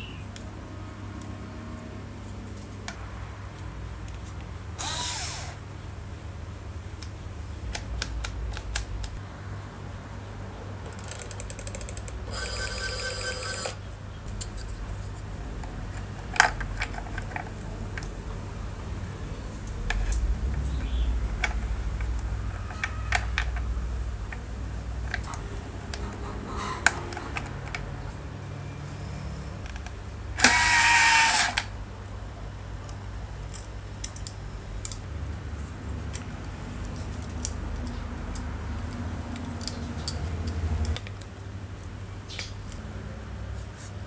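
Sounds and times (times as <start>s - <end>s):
rotary dial whirring back: 4.8s - 5.6s, 11.0s - 13.8s, 30.4s - 31.7s.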